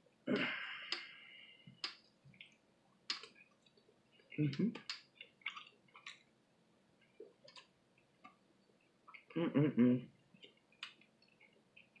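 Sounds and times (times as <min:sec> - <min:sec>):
mouth chewing clicks: 0:01.8 - 0:03.8, 0:04.5 - 0:06.2, 0:10.4 - 0:12.0.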